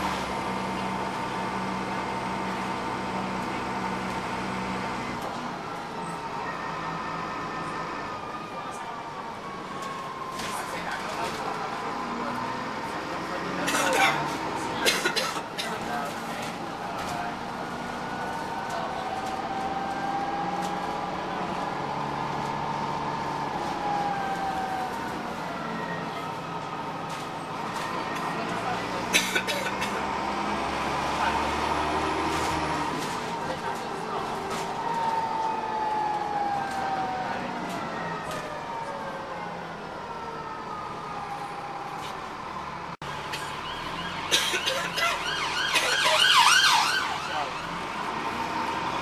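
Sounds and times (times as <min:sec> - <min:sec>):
bus engine with gearbox whine: 0:00.0 - 0:49.0
warbling emergency siren: 0:05.6 - 0:11.8, 0:23.2 - 0:28.4, 0:33.5 - 0:47.9.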